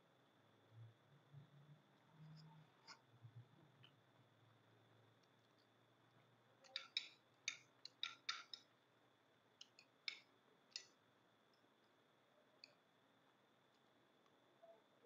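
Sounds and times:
metal spoons clicking on plates: 0:06.6 - 0:08.6.

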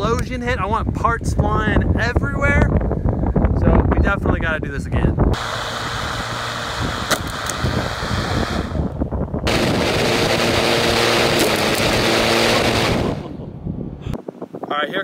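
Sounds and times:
lawn mower running: 0:05.4 - 0:13.3.

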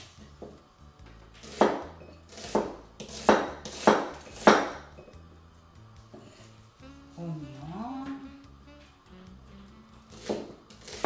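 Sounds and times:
cleaver chopping on wooden board: 0:01.4 - 0:04.9, 0:10.2 - 0:11.0.

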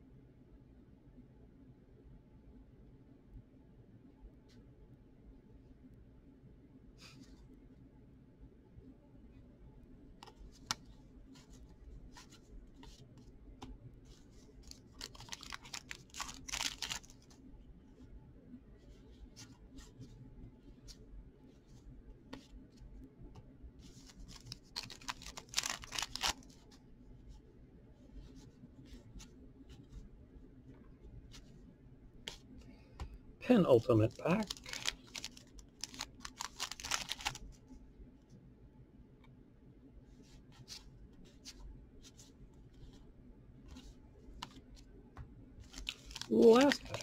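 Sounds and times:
cards ticking as they slide: 0:14.6 - 0:17.3, 0:24.3 - 0:26.5, 0:34.4 - 0:37.4
cards rustling: 0:14.6 - 0:17.4, 0:24.0 - 0:26.8, 0:33.7 - 0:37.5, 0:45.6 - 0:47.0
cardboard cards swishing: 0:45.6 - 0:47.0.

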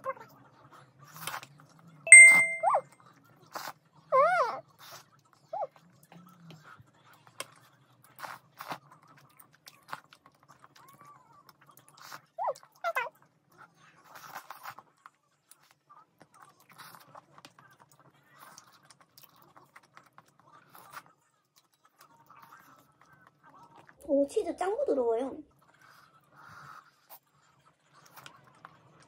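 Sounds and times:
wet chewing and slurping: 0:06.0 - 0:12.8, 0:13.5 - 0:24.0, 0:25.5 - 0:29.0.

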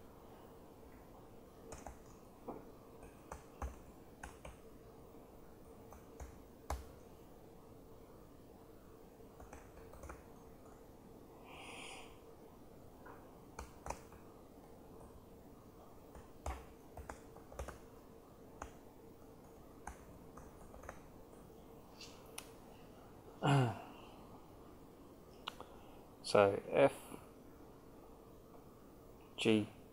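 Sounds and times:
faint room hum: 0:00.0 - 0:29.9
laptop keyboard typing: 0:01.6 - 0:02.3, 0:03.0 - 0:04.7, 0:05.8 - 0:07.2, 0:09.3 - 0:10.8, 0:13.5 - 0:14.3, 0:16.1 - 0:17.9, 0:18.6 - 0:18.8, 0:19.4 - 0:21.1.

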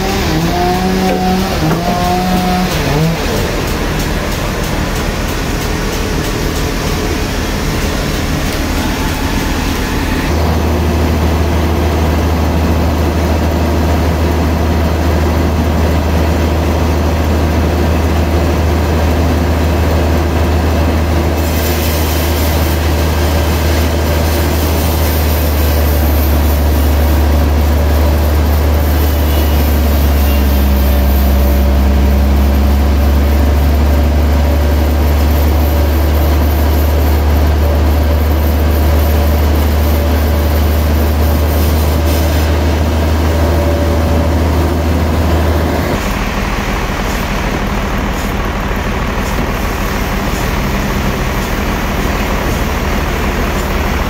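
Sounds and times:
band saw humming: 0:00.0 - 0:11.8
blade cutting wood hiss: 0:21.4 - 0:31.7.

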